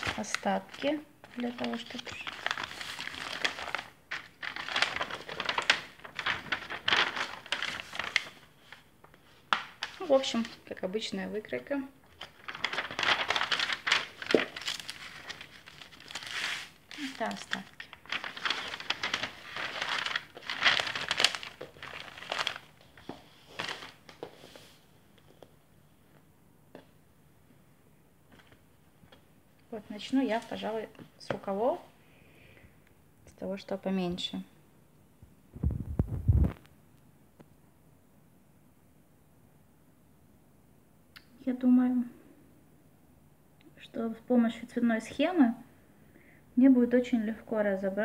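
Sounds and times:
paper sheets rustling: 0.0s - 10.6s, 12.1s - 25.5s.

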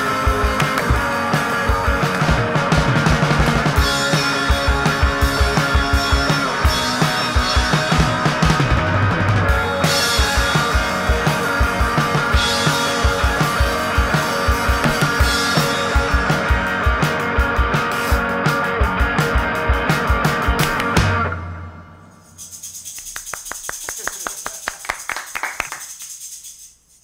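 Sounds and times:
background music with drum beat: 0.0s - 26.4s.

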